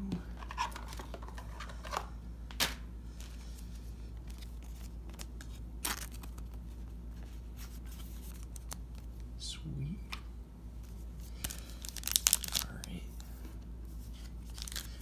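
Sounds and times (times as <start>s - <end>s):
steady low hum: 0.0s - 15.0s
plastic sleeve crinkling: 11.3s - 13.4s, 14.1s - 15.0s.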